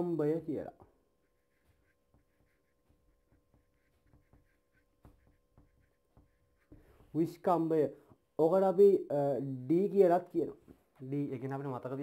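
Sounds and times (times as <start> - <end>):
marker squeaking on whiteboard: 0.8 - 7.2.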